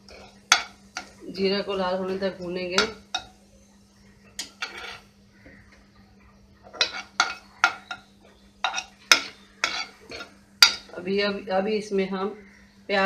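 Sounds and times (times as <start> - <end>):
ladle clinking and scraping pan: 4.4 - 5.1, 6.7 - 8.0, 8.6 - 10.9.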